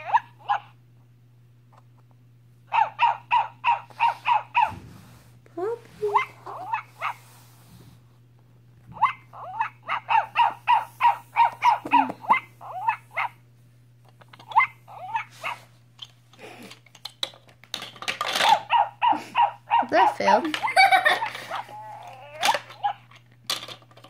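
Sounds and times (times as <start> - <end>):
toy robot puppy electronic barks: 0.0 - 0.7, 2.7 - 4.7, 9.0 - 13.4, 14.4 - 15.6, 18.4 - 20.8, 21.5 - 23.1
plastic toys clicking and clattering: 14.0 - 14.6, 16.0 - 18.7, 20.0 - 24.0.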